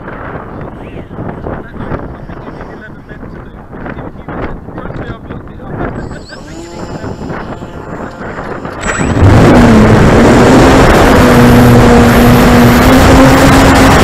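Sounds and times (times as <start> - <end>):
wind rushing on microphone: 0.0 - 14.0
model plane electric motor humming: 5.9 - 10.0.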